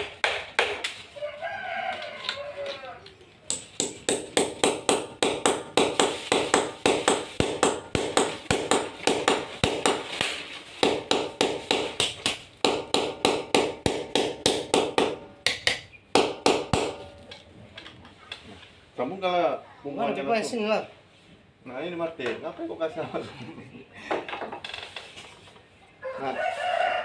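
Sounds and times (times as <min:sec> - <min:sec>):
hammer driving nails into wall: 0:03.5 - 0:17.1.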